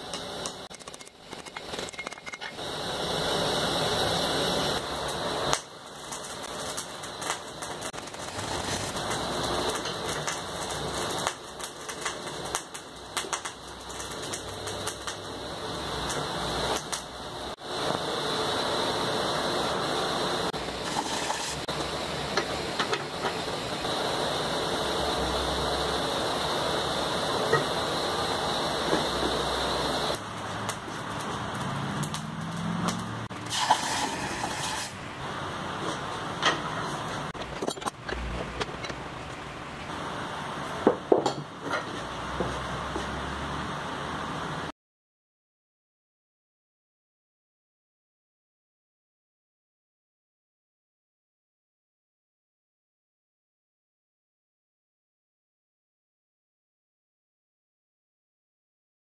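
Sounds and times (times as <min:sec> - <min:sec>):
forge fire rushing: 0:00.3 - 0:37.4
fire crackles and clicks: 0:04.7 - 0:17.3, 0:29.0 - 0:35.0.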